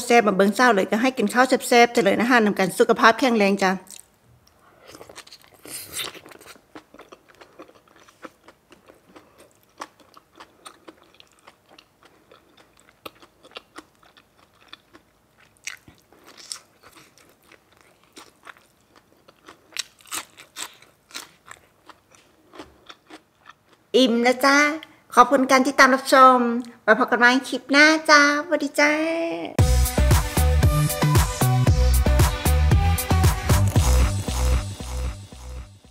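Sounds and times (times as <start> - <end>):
person chewing crunchy food: 3.9 - 23.9.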